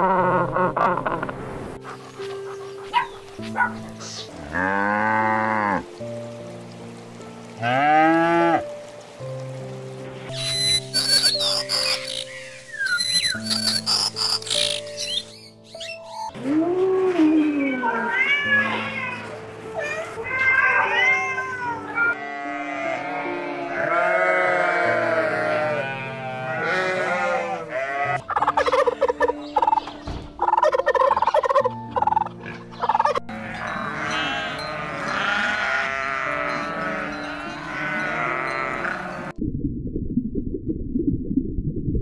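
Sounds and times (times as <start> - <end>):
background music: 0.0 - 39.4
kitten meowing: 17.8 - 19.2
goat bleating: 19.9 - 29.3, 33.3 - 39.3
turkeys gobbling: 28.2 - 33.2.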